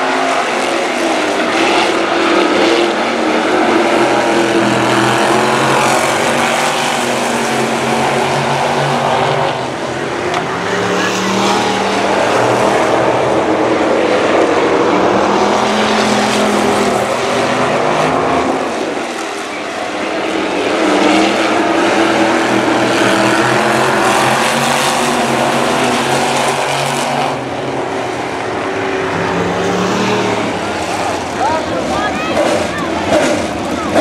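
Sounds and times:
race car engines: 0.0 - 34.0.

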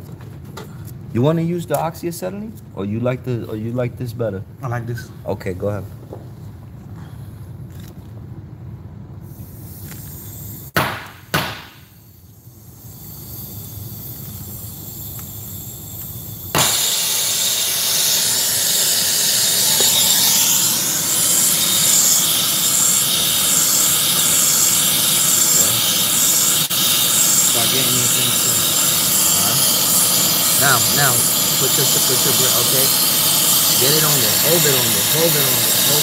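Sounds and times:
brazing torch flame hissing: 9.1 - 36.0
torch igniter clicks: 16.0 - 36.0.

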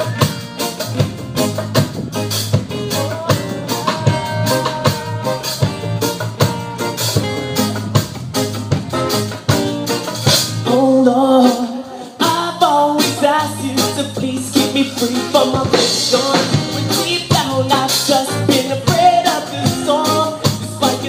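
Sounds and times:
live reggae band: 0.0 - 21.0
man singing: 2.7 - 6.4, 10.6 - 21.0.

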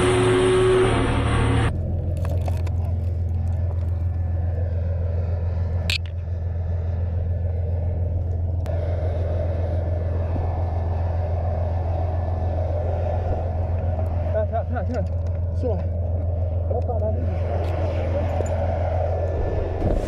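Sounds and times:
diesel engine low rumble: 0.0 - 20.0.

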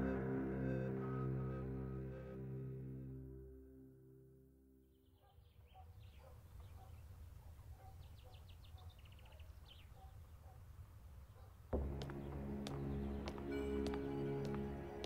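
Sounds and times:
faint birds chirping: 4.8 - 15.0.

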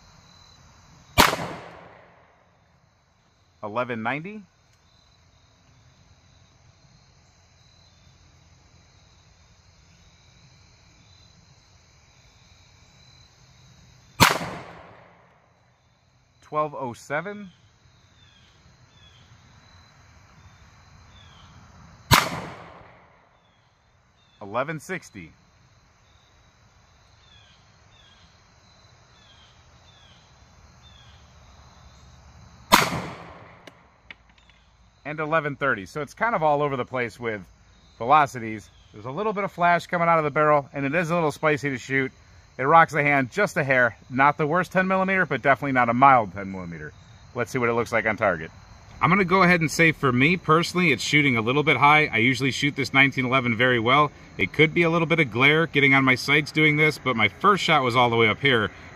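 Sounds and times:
high insect hum: 0.0 - 58.9
pistol shot: 1.2 - 2.3, 14.2 - 15.3, 22.1 - 23.2, 32.7 - 33.8.

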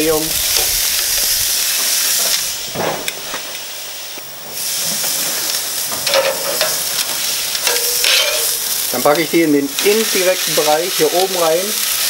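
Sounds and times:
steaks sizzling on grill: 0.0 - 12.0
metal tongs clicking: 6.0 - 8.9.

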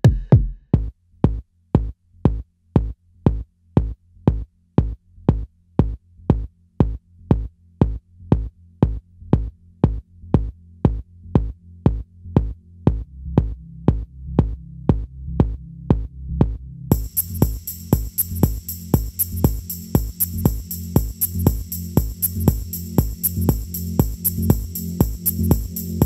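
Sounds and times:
kick drum: 0.0 - 26.0
low bass line: 5.3 - 26.0
electronic music: 16.9 - 26.0.

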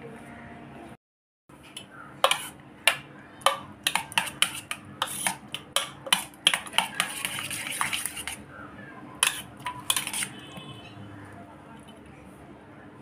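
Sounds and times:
spoon clinking against steel bowl: 9.2 - 10.7.

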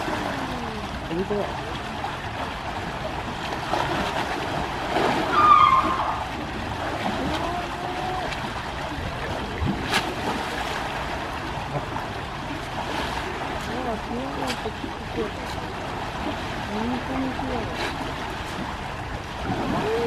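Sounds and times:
water sloshing and splashing: 0.0 - 20.0
elephant high-pitched call: 5.3 - 6.2.

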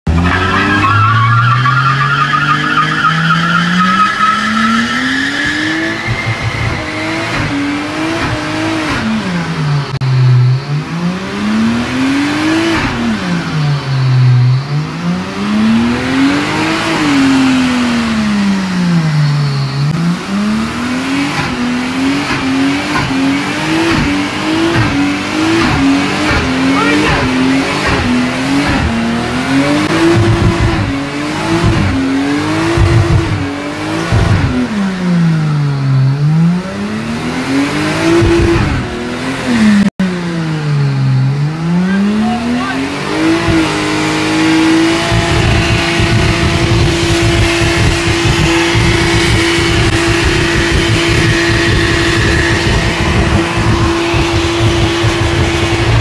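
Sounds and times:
car engine revving: 0.0 - 56.0
tyres squealing on concrete: 0.1 - 7.4.

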